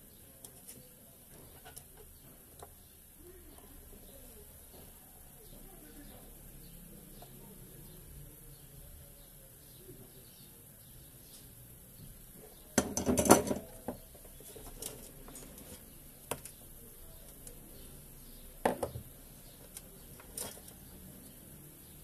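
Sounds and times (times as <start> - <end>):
metal tools clattering on workbench: 12.8 - 13.7.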